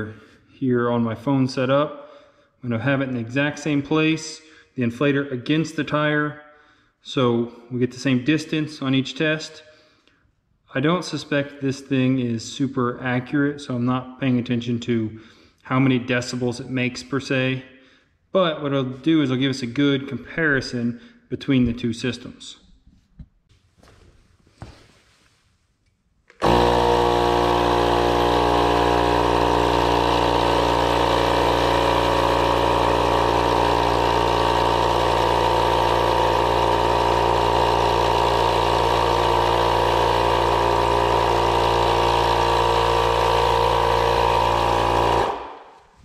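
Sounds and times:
tire inflator compressor humming: 26.3 - 45.9.

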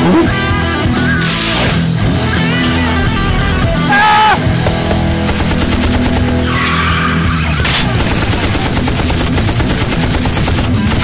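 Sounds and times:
machine-gun fire: 4.7 - 6.6, 7.6 - 11.0.

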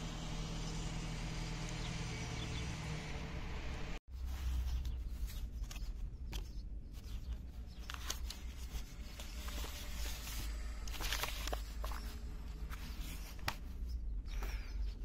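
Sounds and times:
paper rustling: 4.1 - 14.7.

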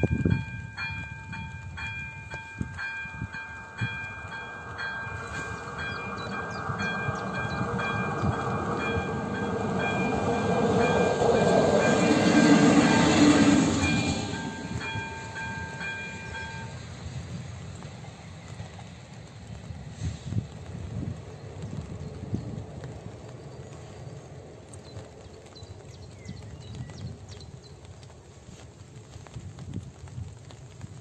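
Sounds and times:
level crossing warning bell: 0.0 - 16.9
train engine and wheel noise: 0.0 - 31.0.

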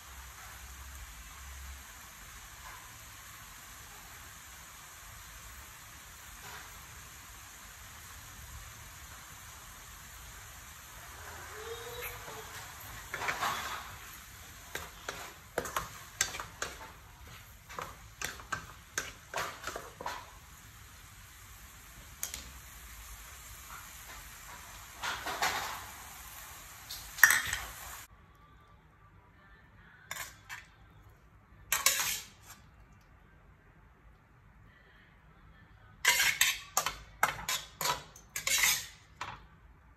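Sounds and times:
frying hiss: 0.0 - 28.1, 31.7 - 32.7, 36.0 - 39.4
metal spatula scraping a wok: 12.0 - 20.4, 30.1 - 30.8, 31.7 - 32.7, 36.0 - 39.4.

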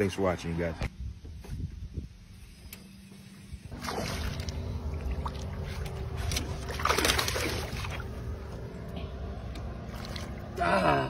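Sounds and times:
steady low rumble: 3.2 - 11.0
fish thrashing and water splashing: 3.7 - 8.8, 9.5 - 10.6.

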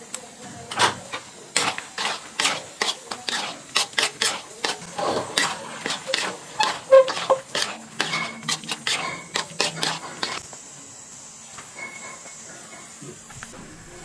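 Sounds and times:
spatula scraping a wok: 0.7 - 10.4.

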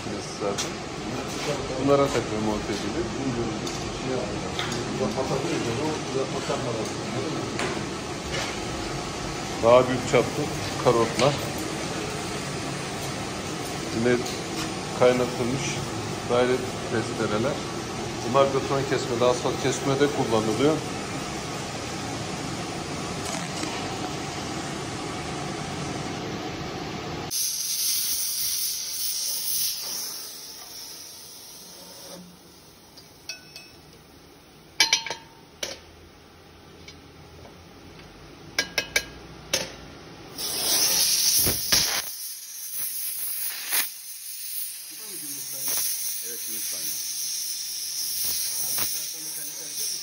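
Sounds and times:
gas torch hissing: 27.3 - 33.2, 40.3 - 50.0.

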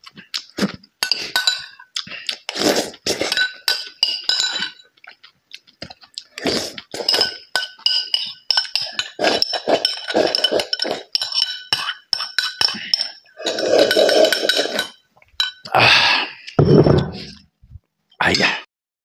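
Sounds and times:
chewing and mouth noises: 0.0 - 15.8
spoon clinking on ceramic bowl: 1.0 - 1.8, 3.2 - 4.9, 7.0 - 15.7.

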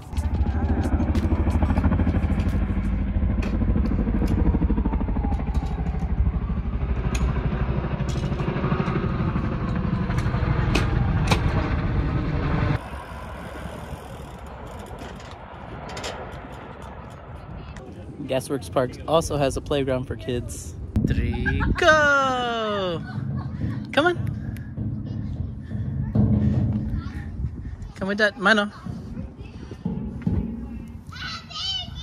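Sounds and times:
outdoor background: 0.0 - 32.0
low engine rumble: 20.7 - 28.0.

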